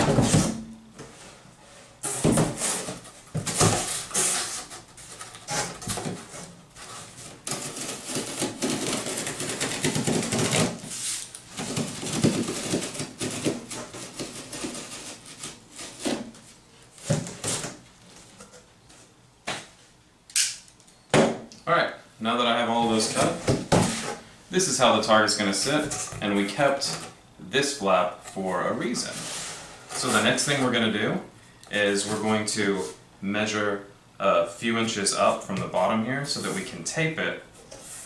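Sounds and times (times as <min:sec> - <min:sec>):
knocks and scrapes of cardboard box: 0:02.0 - 0:17.8.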